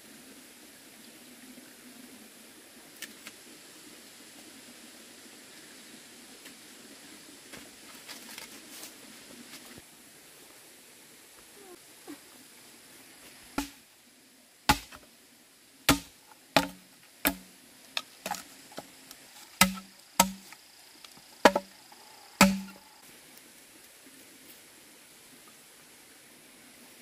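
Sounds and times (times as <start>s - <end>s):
machete chopping bamboo: 13.6s - 13.8s, 14.7s - 15.0s, 15.9s - 20.6s, 21.4s - 21.7s, 22.4s - 22.8s.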